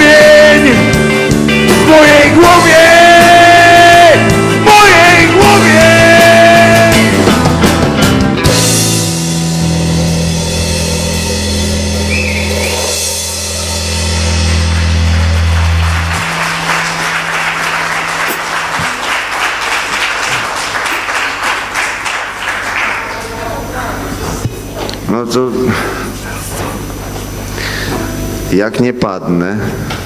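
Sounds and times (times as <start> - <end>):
rock band final chord: 0.0 - 23.8
audience applause: 14.0 - 24.0.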